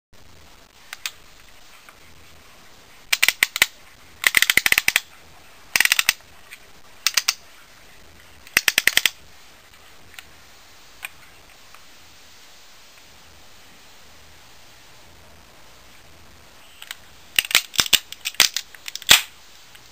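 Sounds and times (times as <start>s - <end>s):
toy gun clicking: 3.1s - 5.0s, 5.8s - 6.2s, 7.0s - 7.4s, 8.6s - 9.2s, 16.8s - 19.3s.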